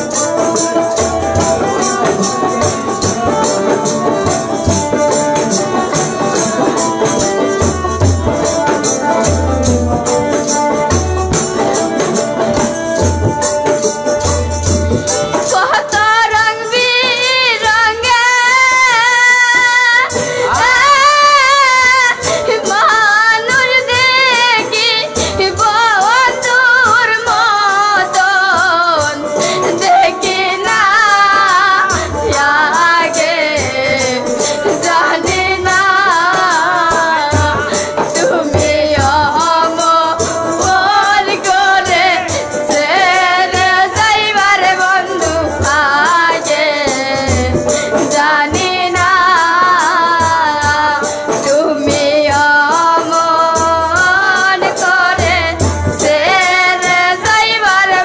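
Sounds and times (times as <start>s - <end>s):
hand drum: 0.0s - 58.0s
jingling percussion: 0.0s - 58.0s
woman singing: 0.0s - 58.0s.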